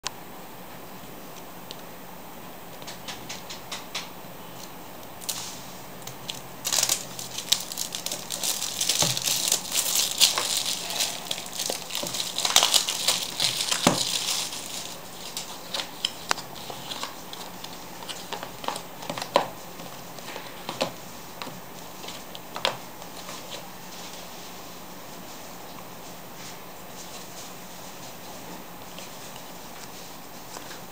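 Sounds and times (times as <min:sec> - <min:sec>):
packaging crinkling: 0:05.2 - 0:19.5.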